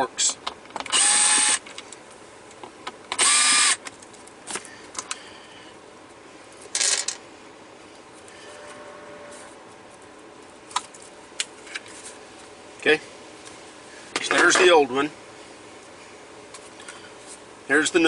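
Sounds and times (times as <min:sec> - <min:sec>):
cordless screwdriver motor whine: 0:00.9 - 0:01.6, 0:03.2 - 0:03.8.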